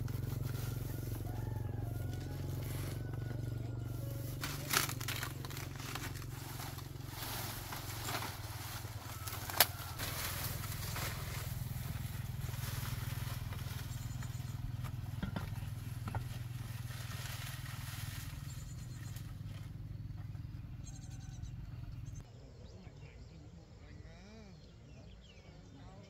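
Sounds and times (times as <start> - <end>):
dry palm fronds rustling: 0.0 - 19.8
low drone: 2.0 - 14.7.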